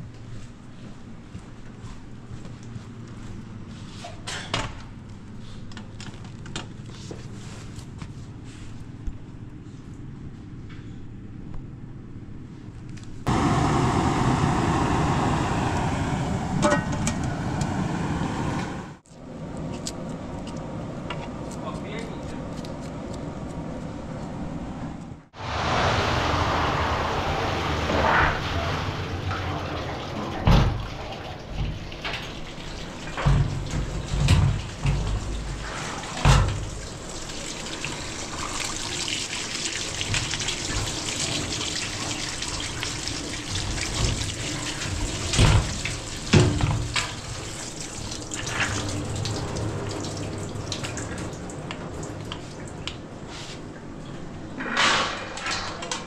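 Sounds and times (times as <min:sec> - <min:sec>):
water running: 0:25.4 - 0:53.1
sharp knocks and clatters: 0:28.8 - 0:36.8.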